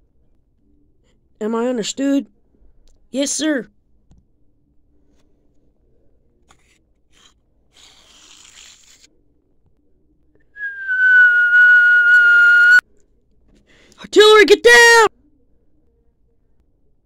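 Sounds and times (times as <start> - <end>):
incoming artillery shell whistle: 10.6 - 12.8.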